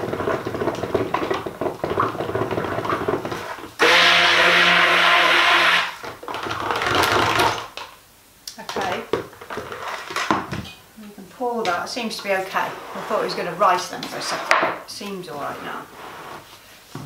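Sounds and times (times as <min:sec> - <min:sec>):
stick blender whirring: 0:00.0 - 0:07.7.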